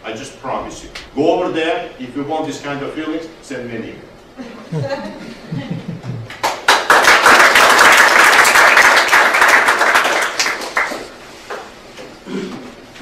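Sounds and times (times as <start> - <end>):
audience applauding: 6.2 - 11.2.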